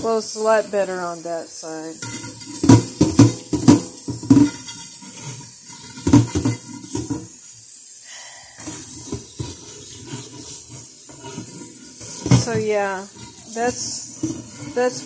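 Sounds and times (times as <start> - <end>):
brush scrubbing pan: 0.0 - 7.8, 8.4 - 15.0
tap water running onto pan: 0.0 - 15.0
pan clunking: 1.9 - 7.4, 8.6 - 15.0.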